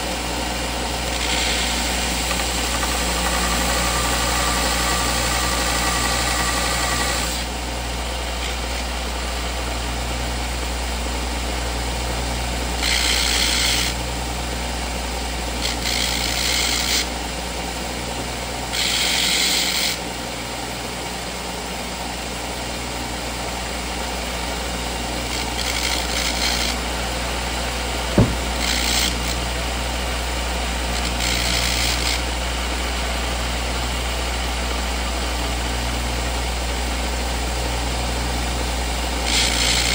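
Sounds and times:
electric grinder running: 0:00.0 - 0:07.6, 0:12.8 - 0:14.0, 0:15.6 - 0:17.1, 0:18.7 - 0:20.0, 0:25.2 - 0:26.9, 0:28.2 - 0:29.5, 0:31.0 - 0:32.4, 0:39.2 - 0:39.9
metal grinding on wheel hiss: 0:01.0 - 0:07.5, 0:12.8 - 0:14.0, 0:18.8 - 0:20.0, 0:25.3 - 0:26.8, 0:28.2 - 0:29.4, 0:31.0 - 0:32.2, 0:39.3 - 0:39.9.

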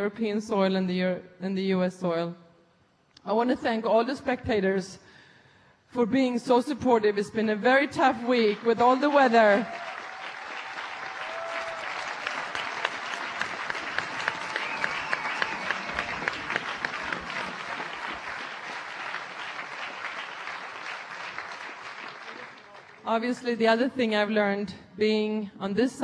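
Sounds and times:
crowd applauding: 0:08.0 - 0:23.1.

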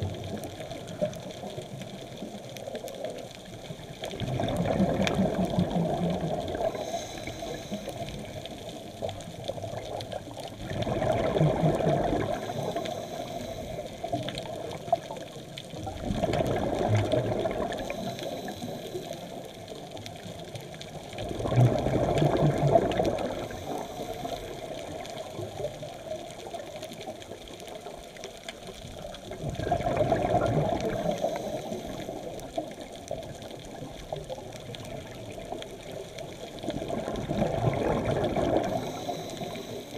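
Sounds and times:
underwater water noise: 0:00.0 - 0:39.9
diver exhaling bubbles underwater: 0:04.1 - 0:08.7, 0:10.5 - 0:14.8, 0:15.8 - 0:19.1, 0:21.2 - 0:25.6, 0:29.3 - 0:32.9, 0:36.6 - 0:39.9.

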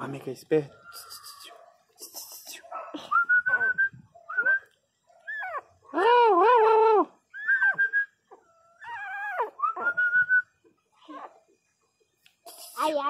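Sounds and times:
puppy yelp: 0:05.2 - 0:05.7, 0:07.4 - 0:10.0
puppy crying and whining: 0:05.2 - 0:05.8, 0:07.4 - 0:10.0.

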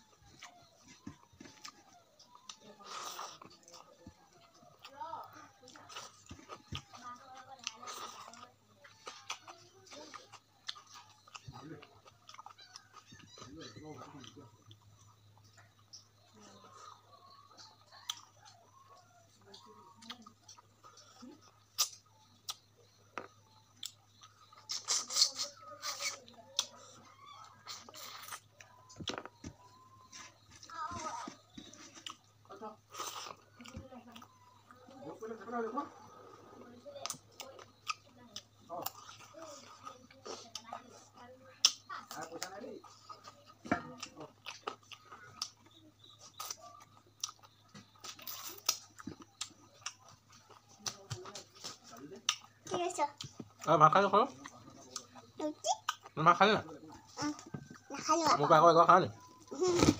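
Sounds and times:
man chewing: 0:00.0 - 0:04.9, 0:07.6 - 0:35.3, 0:35.9 - 0:53.7.

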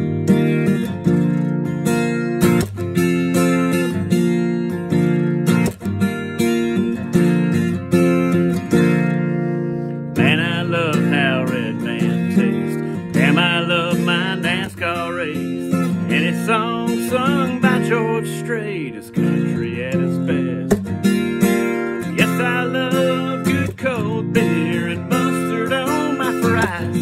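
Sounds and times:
acoustic guitar strumming: 0:00.0 - 0:27.0
man singing: 0:10.1 - 0:27.0.

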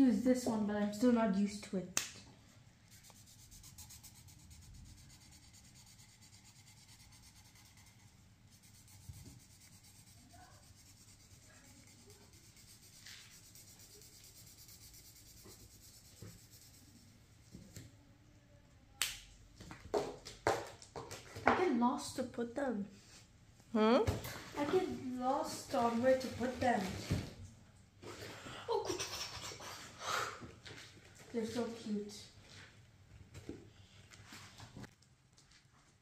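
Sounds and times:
marker scratching on paper: 0:02.9 - 0:17.1.

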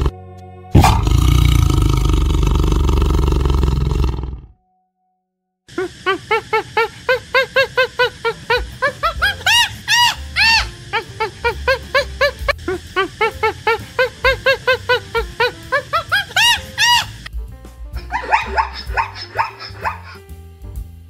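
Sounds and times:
monkey chattering: 0:05.7 - 0:17.3, 0:18.0 - 0:20.3.

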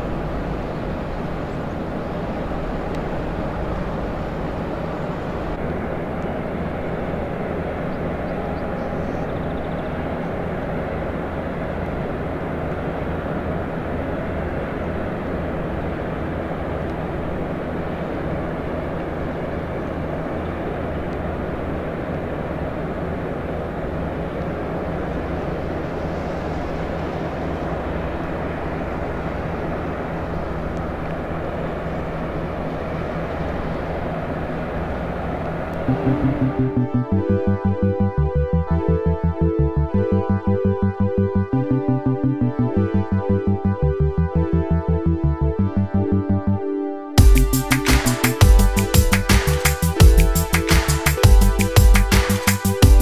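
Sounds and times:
outdoor noise: 0:00.0 - 0:53.0
tugboat engine drone: 0:00.0 - 0:53.0.

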